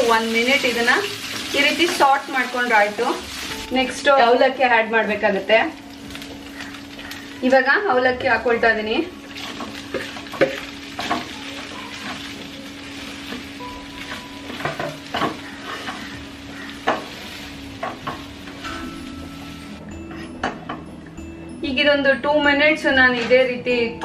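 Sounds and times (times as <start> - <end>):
food sizzling in oil: 0.0 - 8.0, 8.6 - 19.8
spoon scraping a pan: 14.5 - 18.2.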